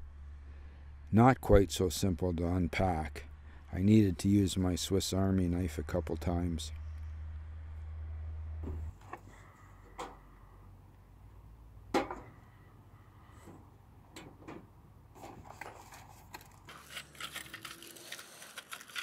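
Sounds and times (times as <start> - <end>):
packaging crinkling: 15.5 - 19.0.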